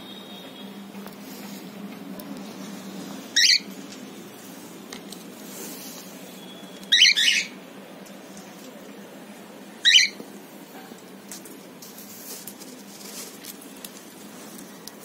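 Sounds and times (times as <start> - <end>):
cockatiel calling: 3.4 - 3.7, 6.9 - 7.6, 9.8 - 10.2.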